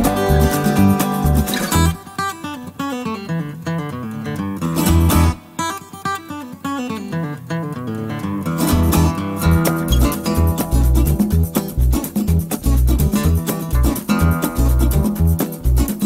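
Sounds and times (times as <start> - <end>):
low bass: 0.0 - 2.0, 9.4 - 16.0
plucked acoustic guitar: 0.0 - 16.0.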